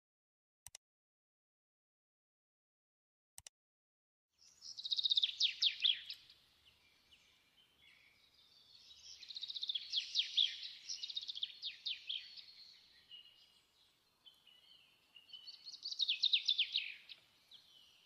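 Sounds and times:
songbird trilling and whistling: 0:04.5 - 0:06.3, 0:08.8 - 0:13.4, 0:14.3 - 0:18.0.

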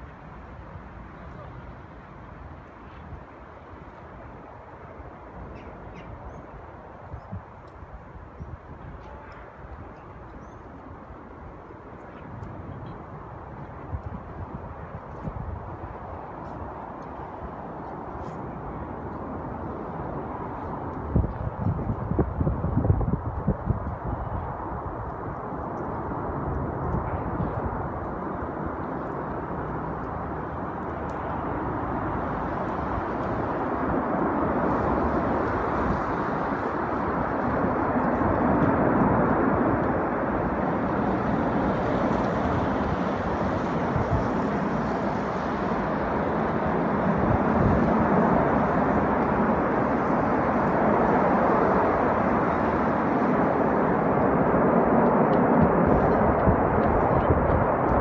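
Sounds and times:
distant fighter jets rumble: 0:00.0 - 0:58.0.

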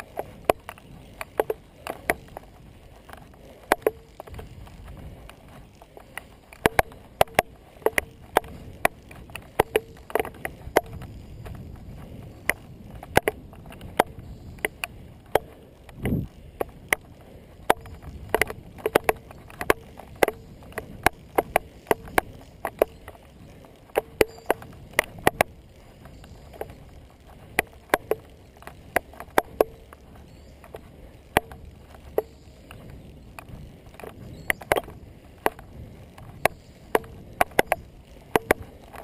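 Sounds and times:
bike clicks and knocks: 0:00.0 - 0:39.0
tyres and wind rumbling: 0:00.0 - 0:39.0.

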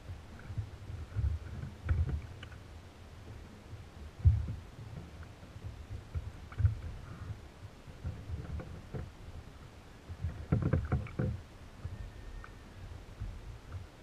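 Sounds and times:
water lapping against kayak hull: 0:00.0 - 0:12.0
knocks and clatter: 0:10.1 - 0:12.0.

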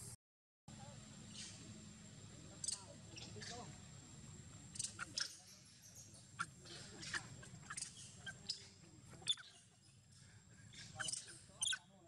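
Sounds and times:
monkeys squeaking and chirping: 0:02.6 - 0:03.6, 0:04.7 - 0:11.9.

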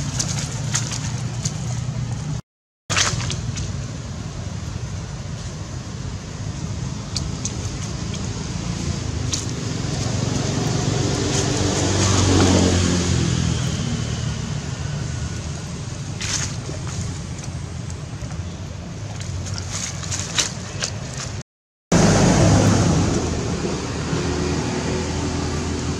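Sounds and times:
vehicle engine passing by: 0:07.7 - 0:17.0, 0:21.9 - 0:25.9.

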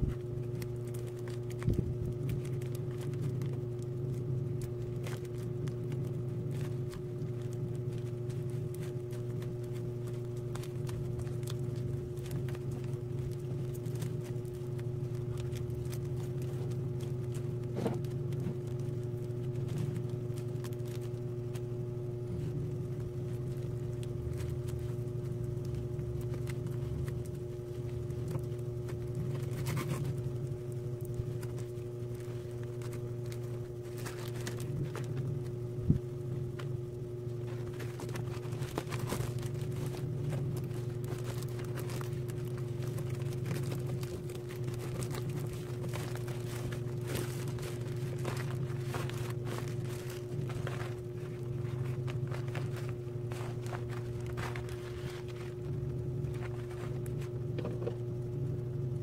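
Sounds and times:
plastic sack rustling: 0:00.0 - 0:58.2
low hum: 0:00.0 - 0:59.0.

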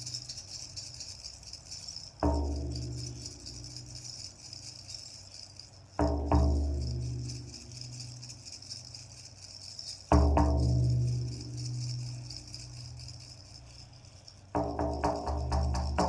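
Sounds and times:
jingling bells: 0:00.0 - 0:16.0
frame drum booming beats: 0:02.2 - 0:03.9, 0:06.0 - 0:07.6, 0:10.1 - 0:12.3, 0:14.6 - 0:16.0.

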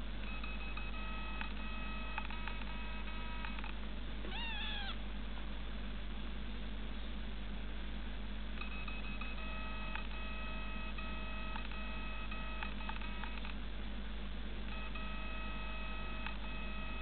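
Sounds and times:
low steady hum: 0:00.0 - 0:17.0
electronic beeping tone: 0:00.3 - 0:03.6, 0:08.6 - 0:13.4, 0:14.7 - 0:17.0.

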